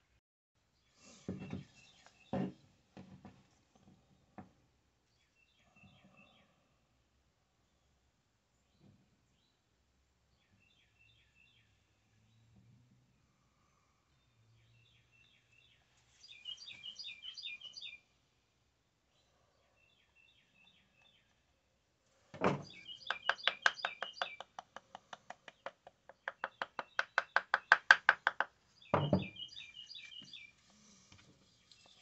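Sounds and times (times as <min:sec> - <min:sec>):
bird chirping: 0:10.3 - 0:12.7, 0:14.1 - 0:18.2, 0:19.1 - 0:21.6, 0:22.4 - 0:30.7, 0:31.4 - 0:32.0
wooden parts thumping: 0:22.4 - 0:23.8, 0:27.4 - 0:29.4
fast light wooden taps: 0:23.0 - 0:28.6.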